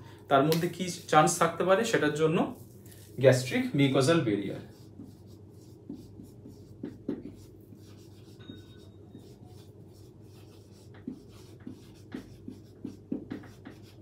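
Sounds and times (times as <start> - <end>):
marker pen writing on whiteboard: 4.4 - 14.0.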